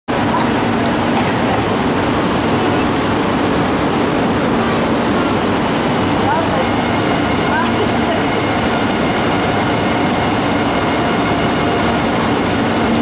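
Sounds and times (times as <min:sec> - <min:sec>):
high-speed train rushing past: 0:00.1 - 0:13.0.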